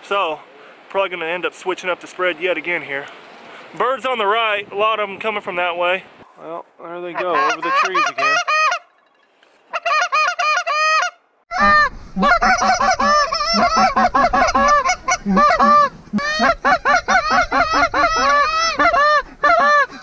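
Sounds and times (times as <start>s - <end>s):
duck call quacks: 7.1s - 8.9s, 9.7s - 20.0s.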